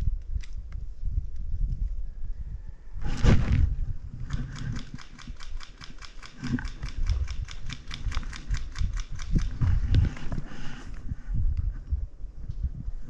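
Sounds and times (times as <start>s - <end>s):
fast even clicking: 4.2s - 10.1s.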